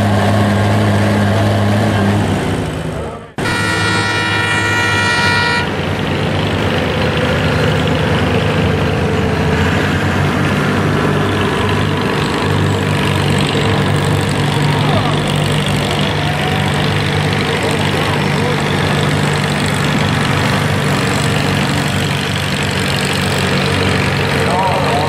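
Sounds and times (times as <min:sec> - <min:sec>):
tractor diesel engine running: 0:00.0 - 0:25.0
horn sounding: 0:03.4 - 0:05.8.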